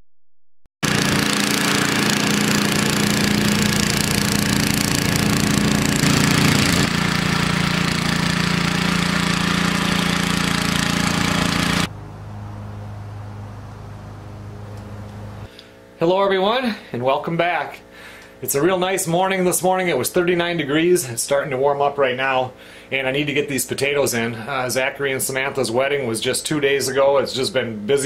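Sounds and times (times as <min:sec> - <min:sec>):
rototiller engine running: 0:00.8 - 0:15.4.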